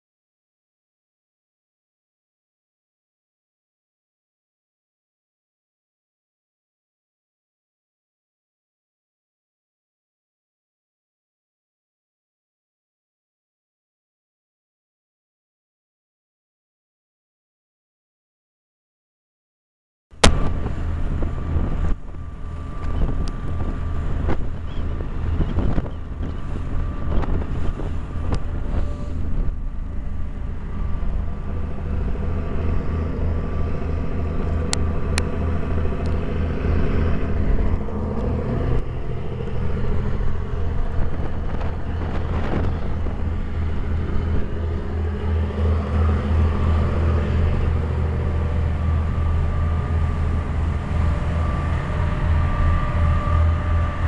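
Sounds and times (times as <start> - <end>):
boat engine droning: 20.1 - 54.0
water churning alongside hull: 20.2 - 54.0.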